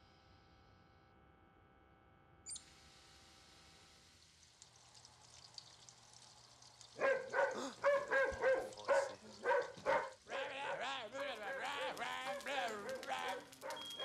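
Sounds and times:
dog barking: 0:07.0 - 0:14.0.

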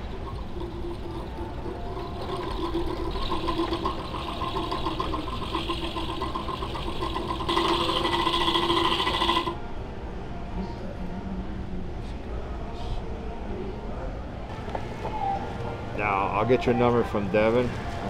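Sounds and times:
line spooling machine motor whine: 0:00.0 - 0:09.6.

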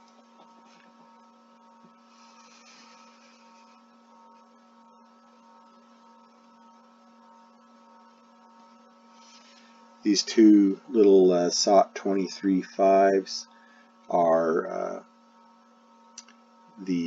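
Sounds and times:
faint electrical hum: 0:00.0 - 0:17.0
light hiss: 0:02.0 - 0:04.4.

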